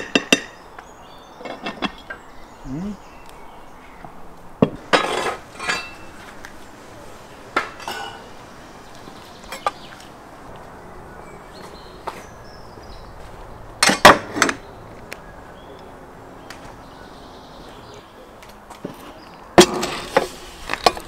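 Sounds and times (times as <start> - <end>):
cookware clinking and knocking: 4.9 - 6.0, 7.6 - 8.3.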